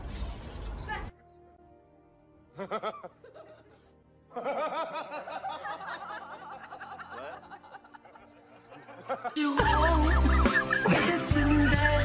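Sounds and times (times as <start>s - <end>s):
soft background music: 0.0s - 12.0s
chuckling laughter: 2.5s - 12.0s.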